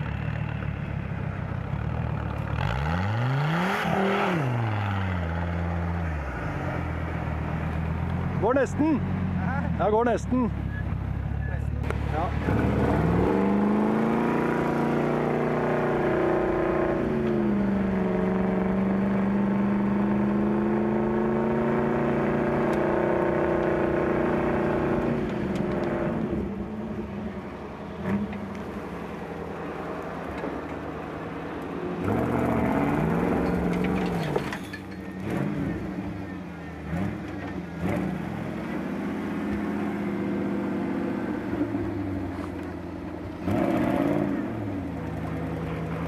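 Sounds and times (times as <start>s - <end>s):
truck engine revving: 1.8s - 46.0s.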